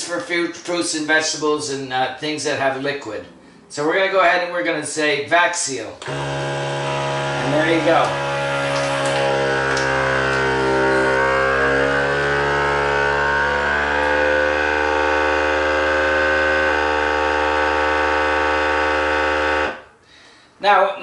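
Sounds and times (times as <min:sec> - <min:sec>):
vacuum sealer pump humming: 0:06.0 - 0:20.0.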